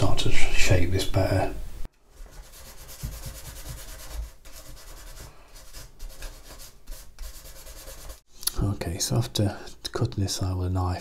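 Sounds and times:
sandpaper rubbing wood: 2.1s - 8.2s.

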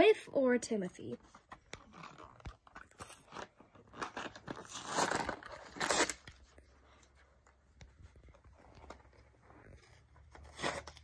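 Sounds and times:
packaging crinkling: 1.3s - 6.5s
cardboard tearing: 1.8s - 6.4s, 9.8s - 11.0s.

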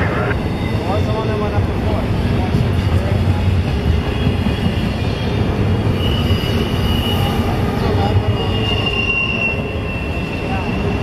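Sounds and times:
train wheels rumbling on rails: 0.0s - 11.0s
high wheel squeal: 4.7s - 11.0s.

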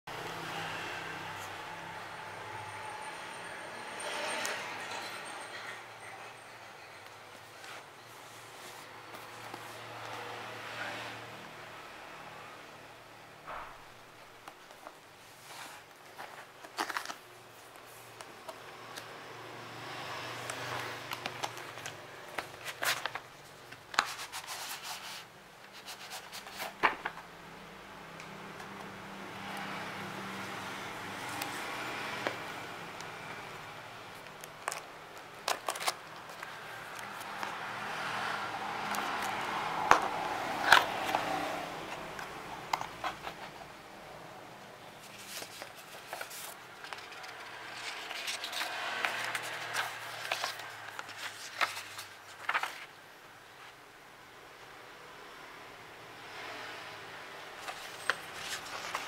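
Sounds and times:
paper rustling: 14.4s - 18.5s, 20.7s - 27.2s, 34.2s - 37.7s, 38.9s - 43.7s, 45.0s - 52.9s, 57.6s - 59.0s.

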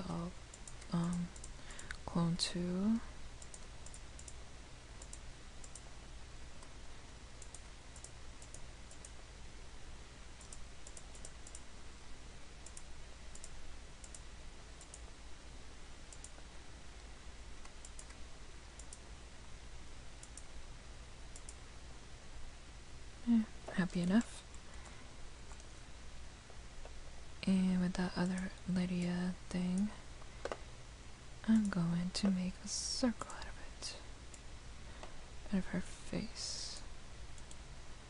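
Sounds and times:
low hum and hiss: 0.0s - 38.0s
computer mouse clicks: 0.5s - 2.0s, 3.4s - 4.4s, 5.0s - 5.9s, 7.4s - 9.2s, 10.4s - 11.7s, 12.6s - 15.1s, 16.1s - 16.4s, 17.0s - 18.2s, 18.8s - 19.0s, 20.2s - 20.5s, 21.3s - 21.6s, 23.6s - 25.7s, 29.8s - 30.6s, 37.3s - 37.6s.

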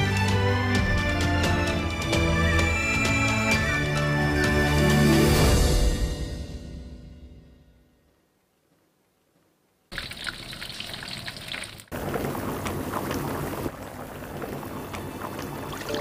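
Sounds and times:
food sizzling: 9.9s - 16.0s
meat and fish simmering in a pot: 9.9s - 16.0s.

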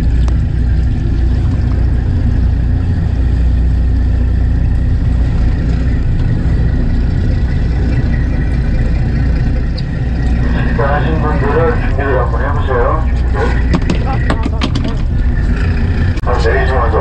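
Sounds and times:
boat engine droning: 0.0s - 17.0s.

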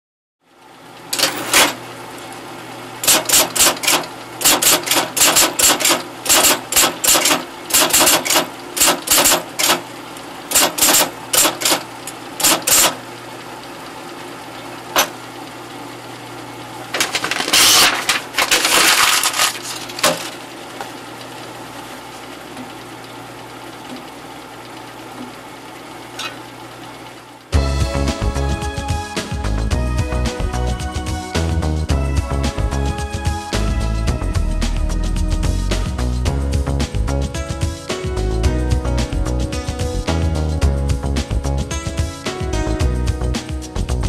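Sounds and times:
typewriter motor hum: 1.1s - 1.8s, 3.0s - 13.1s, 16.9s - 20.4s
typewriter keystrokes: 3.0s - 9.8s, 10.5s - 13.0s.

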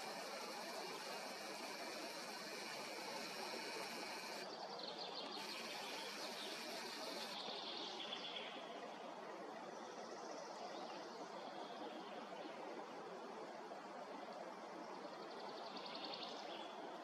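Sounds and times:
steady hiss: 0.0s - 4.5s, 5.4s - 7.4s
faint birdsong: 0.0s - 8.7s.

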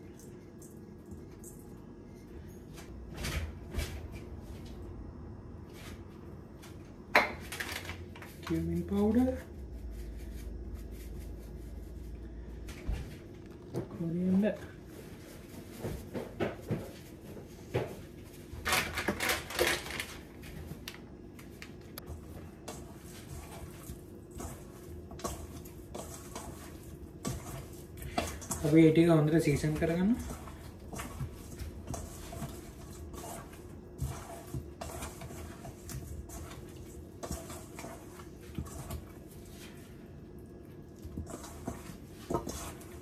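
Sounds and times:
meat squishing in steel bowl: 22.0s - 43.0s.

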